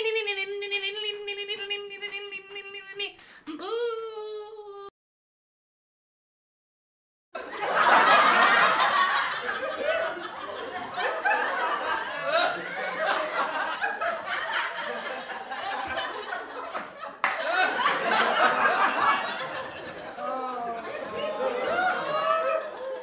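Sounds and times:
crowd laughing and chattering: 7.4s - 23.0s.

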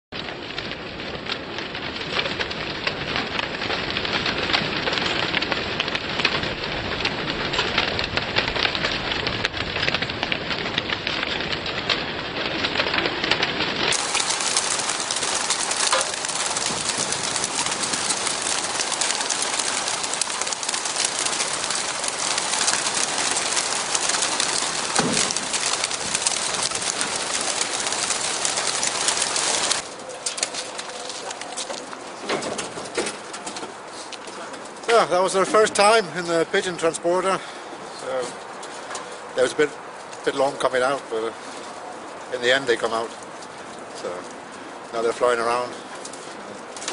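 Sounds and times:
wings clattering: 2.0s - 35.2s, 41.4s - 46.9s
pigeons cooing: 13.9s - 32.2s.

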